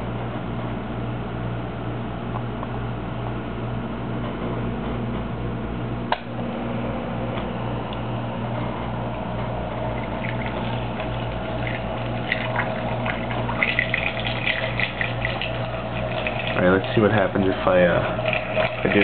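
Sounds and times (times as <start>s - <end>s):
water bubbling and gurgling: 9.6s - 19.0s.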